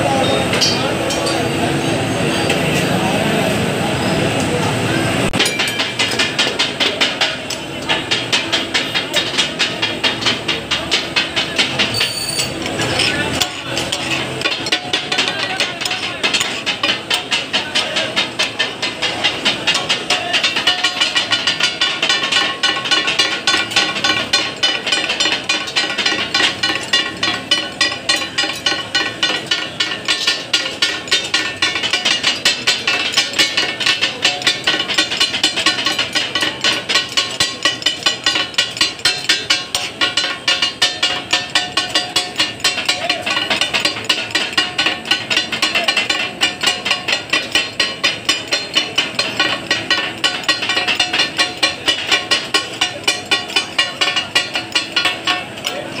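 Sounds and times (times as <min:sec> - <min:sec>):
blades clanging on griddle: 0:00.0 - 0:56.0.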